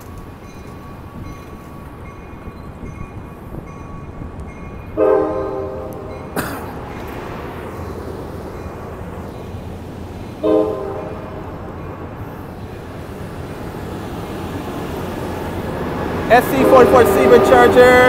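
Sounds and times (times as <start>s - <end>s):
passenger train rumbling past: 0.0s - 18.0s
train horn blast: 5.0s - 6.2s, 10.4s - 11.4s, 16.3s - 18.0s.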